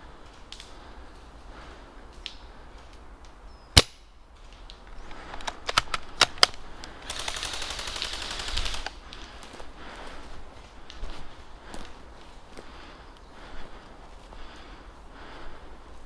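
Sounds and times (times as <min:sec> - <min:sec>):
automatic airsoft fire: 0:07.0 - 0:08.9.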